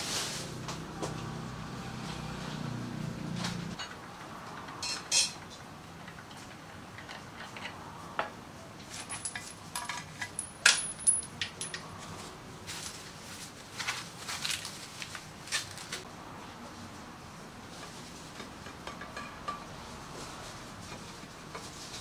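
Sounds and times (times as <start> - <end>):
metal tools clinking: 8.9 - 12.0.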